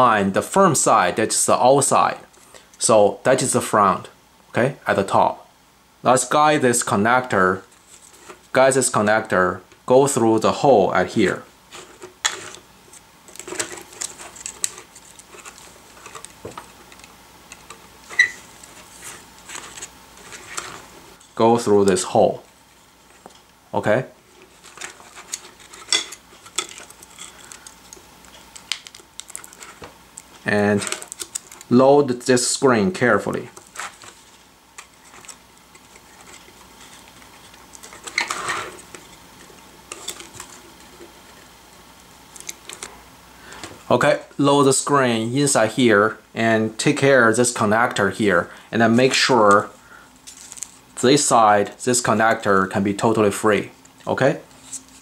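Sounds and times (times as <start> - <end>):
plastic film crinkling: 11.7 - 21.2, 24.2 - 31.8, 33.2 - 41.5, 49.0 - 50.9
plastic rustle: 11.7 - 21.4, 24.2 - 31.8, 33.1 - 41.5, 49.0 - 51.0.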